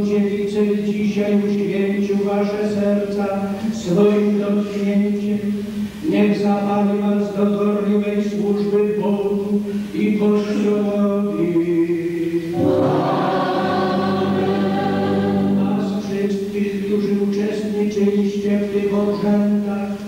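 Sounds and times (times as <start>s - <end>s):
man chanting a prayer: 0.0s - 12.6s, 15.6s - 20.0s
choir singing: 12.4s - 16.6s.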